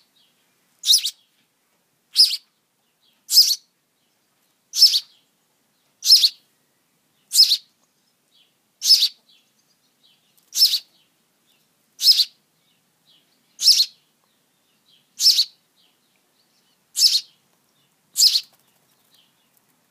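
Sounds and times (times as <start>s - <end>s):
bird chick begging chirps: 0.8s - 1.3s, 2.1s - 2.5s, 3.2s - 3.7s, 4.7s - 5.3s, 6.0s - 6.5s, 7.2s - 7.7s, 8.8s - 9.4s, 10.2s - 11.1s, 12.0s - 12.4s, 13.2s - 14.0s, 15.0s - 17.4s, 18.2s - 19.2s.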